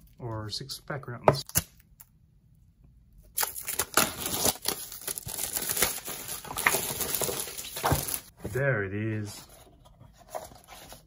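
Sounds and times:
plastic wrapping crinkling: 3.4 - 8.3.

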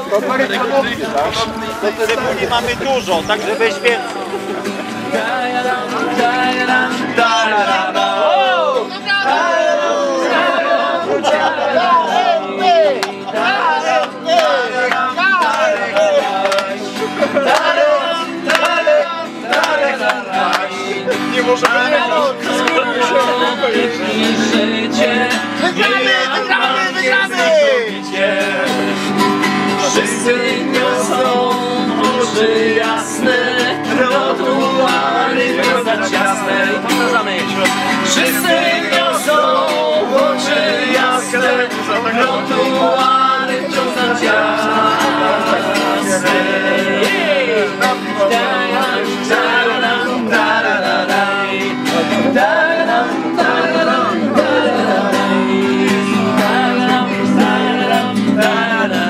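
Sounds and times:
song with guitar and male vocals: 0.0 - 59.0.

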